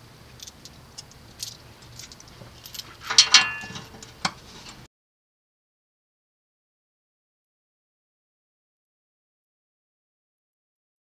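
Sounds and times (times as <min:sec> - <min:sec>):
light metal clicks and clinks: 0:00.3 - 0:04.4
metal ringing: 0:01.4 - 0:04.4.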